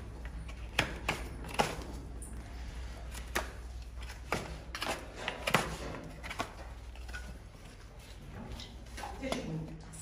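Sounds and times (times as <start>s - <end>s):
knife paring a hoof: 3.0s - 7.8s.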